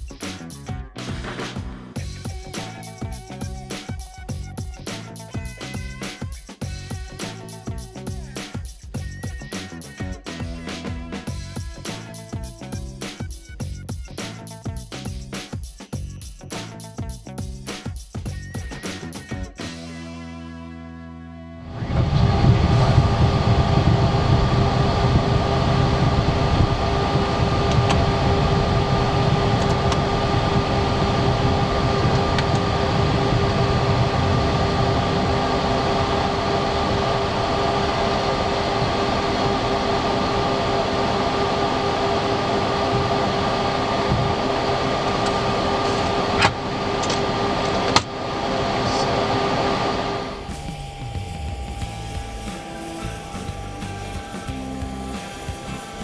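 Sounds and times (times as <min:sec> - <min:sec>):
jet engines idling hum: 0:21.7 - 0:56.0.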